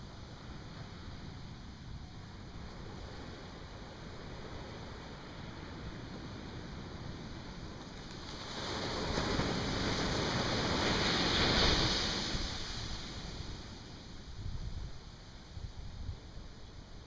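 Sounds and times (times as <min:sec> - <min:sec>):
wave breaking on beach: 0:02.7 - 0:14.3.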